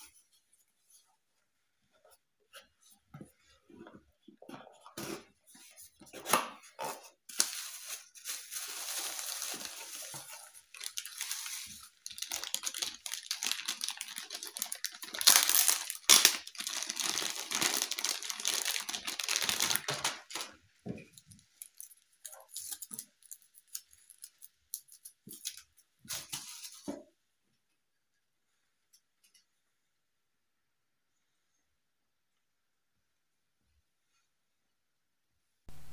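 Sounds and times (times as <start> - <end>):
bubble-wrap bag crinkling: 7.3 - 20.5.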